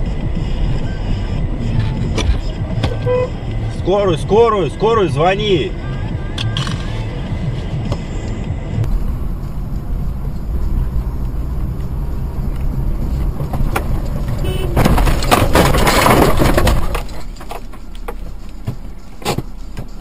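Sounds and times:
car road and engine noise: 0:00.0 - 0:20.0
car crash: 0:13.3 - 0:19.6.

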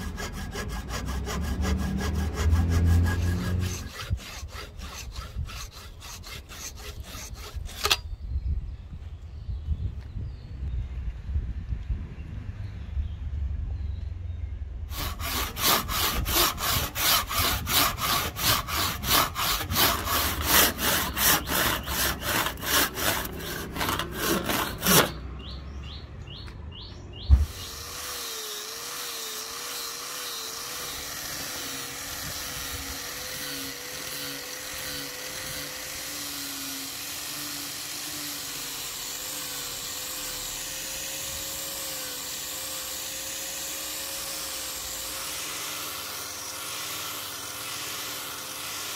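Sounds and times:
hand tool strokes on wood: 0:00.0 - 0:08.0, 0:14.9 - 0:25.2.

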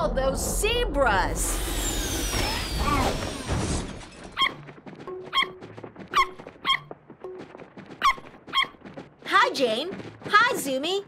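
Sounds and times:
high cartoon squeaks: 0:01.6 - 0:04.7, 0:05.3 - 0:06.9, 0:08.0 - 0:08.8.

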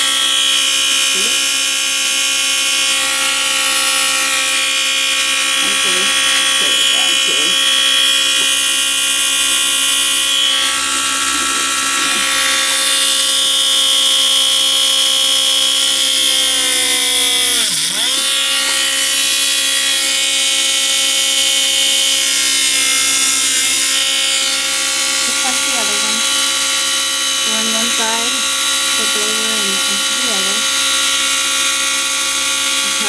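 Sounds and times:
rotary tool whining while drilling: 0:00.0 - 0:33.0.

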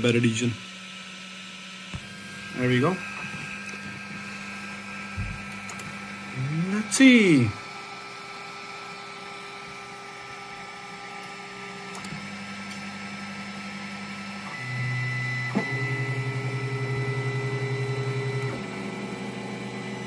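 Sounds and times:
stepper motors humming: 0:00.0 - 0:20.0
extruder clicking: 0:03.1 - 0:06.1, 0:11.2 - 0:12.9, 0:17.0 - 0:20.0.

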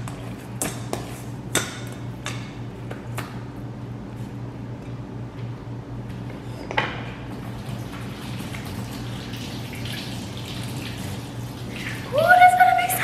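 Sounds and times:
tap water running: 0:07.3 - 0:13.0.

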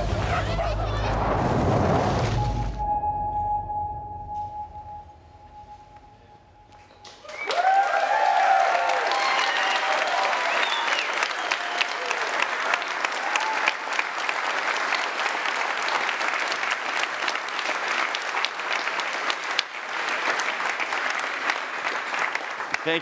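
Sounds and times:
audience applauding: 0:07.0 - 0:23.0.

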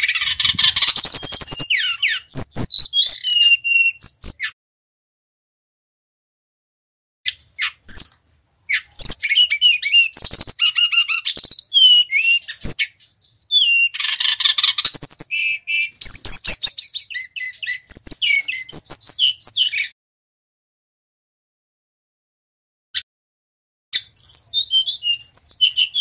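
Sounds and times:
bird singing whistled trills: 0:00.1 - 0:04.6, 0:07.3 - 0:20.0, 0:24.0 - 0:26.0.

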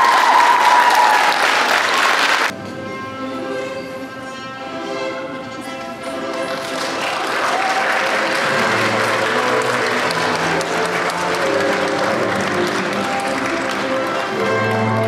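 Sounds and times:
guests applauding: 0:00.0 - 0:02.5, 0:06.2 - 0:15.0
music with sustained tones: 0:02.5 - 0:15.0.

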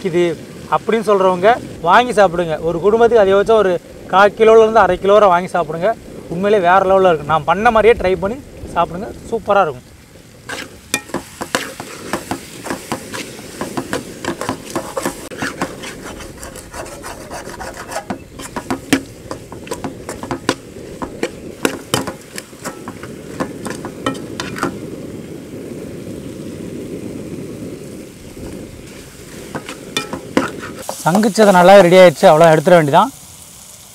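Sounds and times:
ladle scraping metal pot: 0:10.5 - 0:24.8, 0:28.8 - 0:31.2
ladle knocking against pot: 0:10.9 - 0:15.7, 0:18.0 - 0:24.7, 0:29.6 - 0:30.5.

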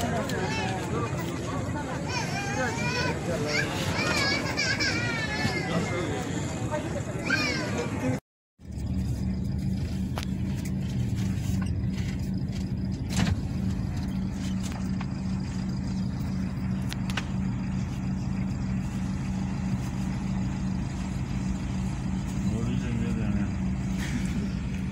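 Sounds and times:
road rumble: 0:00.0 - 0:24.9
car engine drone: 0:08.6 - 0:24.9.

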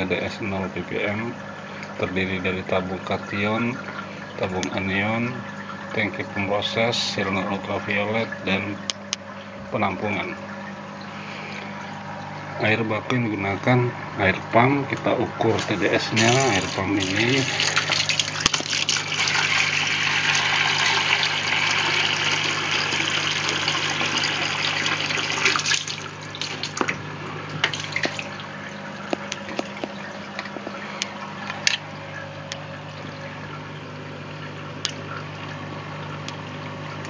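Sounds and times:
low steady hum: 0:00.0 - 0:37.0
water dripping: 0:00.8 - 0:37.0
tap water running into bowl: 0:15.0 - 0:35.6.

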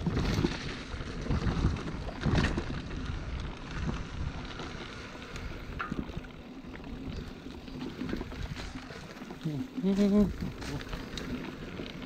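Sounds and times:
wind rumbling on microphone: 0:00.0 - 0:12.0
faint ticks: 0:04.8 - 0:09.6.

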